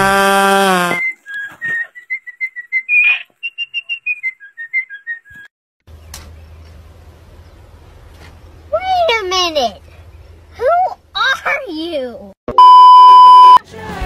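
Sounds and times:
whistled tune: 0.9 - 5.5.

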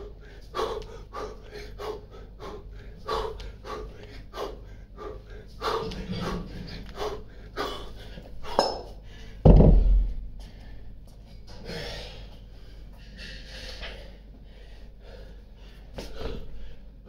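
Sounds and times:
person panting: 0.0 - 9.4, 10.4 - 17.0
hard rhythmic breathing: 0.0 - 17.0
kettlebells clinking: 8.5 - 9.0
kettlebells thudding on rubber floor: 8.5 - 10.2.

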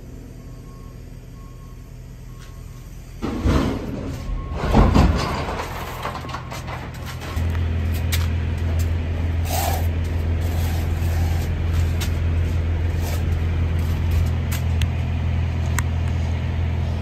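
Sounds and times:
diesel truck engine idling: 0.0 - 17.0.

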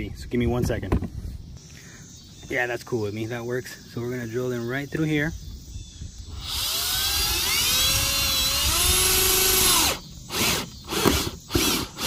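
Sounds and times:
power drill drilling sheet metal: 6.4 - 12.0.

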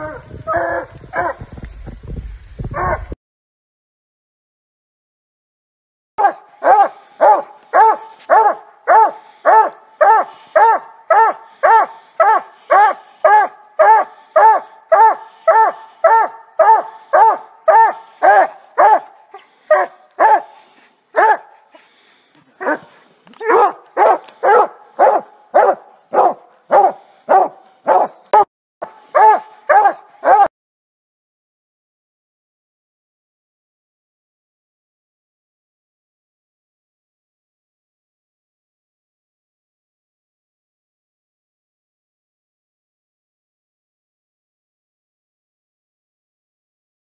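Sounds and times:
dog barking: 0.6 - 1.4, 6.2 - 21.8, 22.6 - 30.5.

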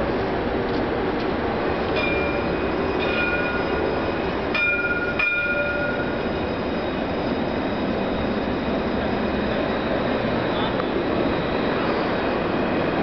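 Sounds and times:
city traffic hum: 0.0 - 13.0
tram approaching on tracks: 0.0 - 13.0
short high ringing tones: 2.0 - 10.5.

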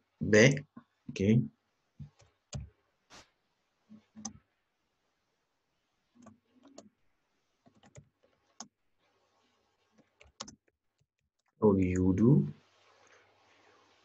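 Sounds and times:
keyboard typing: 4.2 - 4.4, 6.2 - 6.9, 7.7 - 8.7, 10.0 - 10.7.

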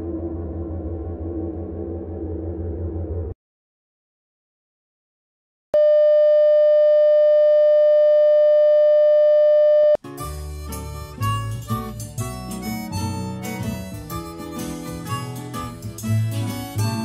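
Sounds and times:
music: 10.0 - 17.0.

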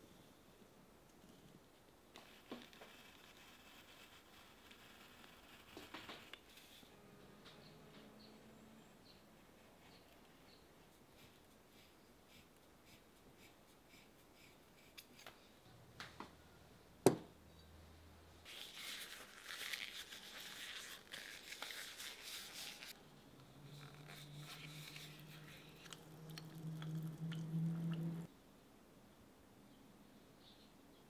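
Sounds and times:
low steady hum: 23.0 - 28.3.

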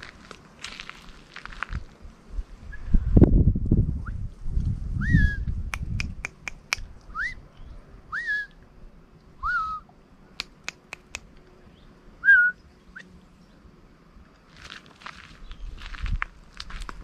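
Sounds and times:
sharp clicks: 5.7 - 6.9, 10.4 - 11.4.

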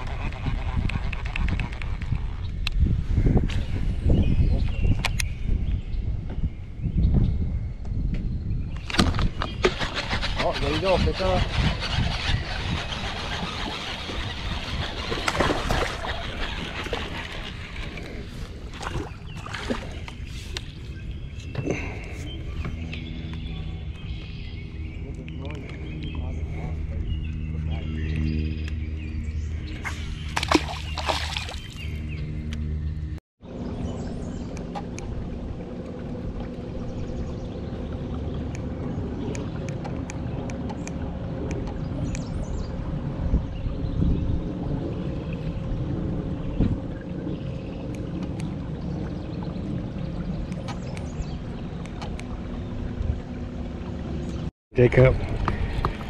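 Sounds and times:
wind and water rumble on microphone: 0.0 - 56.0
electric trolling motor humming: 9.6 - 18.7, 31.8 - 54.5.

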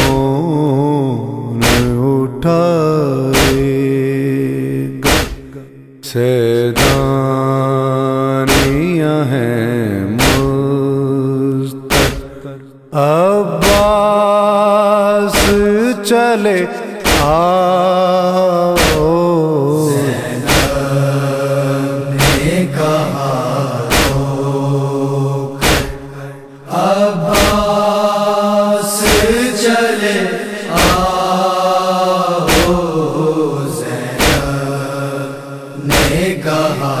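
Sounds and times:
men chanting a lament: 0.0 - 37.0
sharp rhythmic beat: 1.6 - 2.0, 3.4 - 3.8, 5.0 - 5.6, 6.8 - 7.2, 8.5 - 8.8, 10.2 - 10.6, 11.9 - 12.4, 13.6 - 14.0, 17.0 - 17.5, 18.8 - 19.1, 20.4 - 20.9, 22.2 - 23.2, 23.9 - 24.4, 25.6 - 26.1, 26.8 - 28.4, 30.7 - 31.6, 32.4 - 33.1, 34.2 - 34.7, 35.9 - 36.4.

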